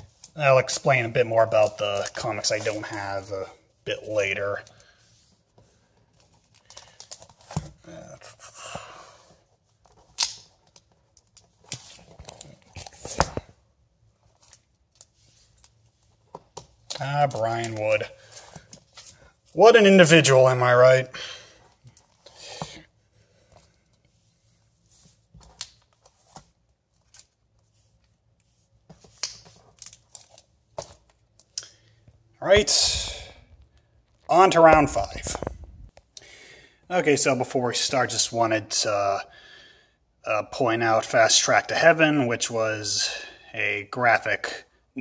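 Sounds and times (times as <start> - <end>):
comic books rustling: 0.0 - 36.0.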